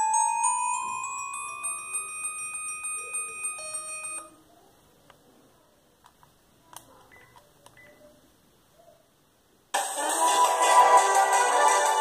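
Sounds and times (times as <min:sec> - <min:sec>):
phone ringtone melody: 0:00.0 - 0:04.3.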